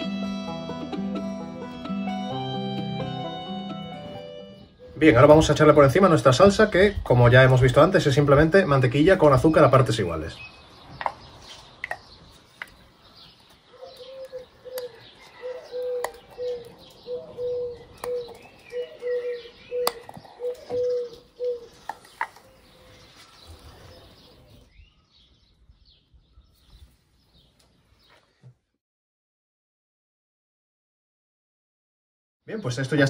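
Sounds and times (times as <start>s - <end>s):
small birds chirping: 3.8s - 28.7s
bird hooting low note: 3.9s - 5.7s, 14.0s - 21.7s.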